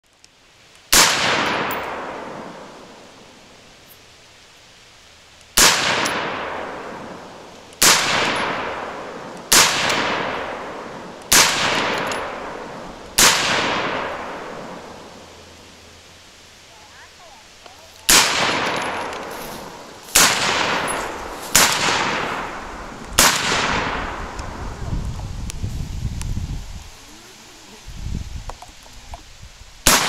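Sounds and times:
gunshot echo: 0.9s - 2.8s, 5.6s - 7.2s, 7.8s - 15.2s, 18.1s - 24.6s
rifle shots: 0.9s - 2.8s, 5.6s - 15.2s, 18.1s - 24.6s.

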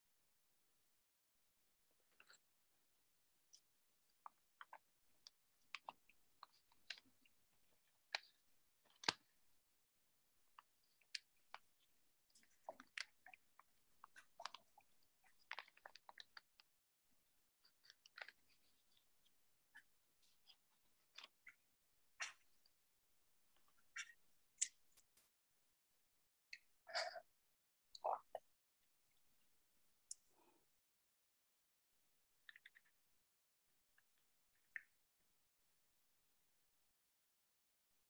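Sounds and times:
faint small clicks and taps: 17.6s - 21.6s.

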